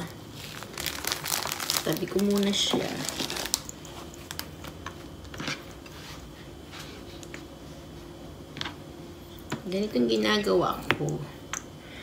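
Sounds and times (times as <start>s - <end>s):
wrapper rustling: 0.0s - 4.7s.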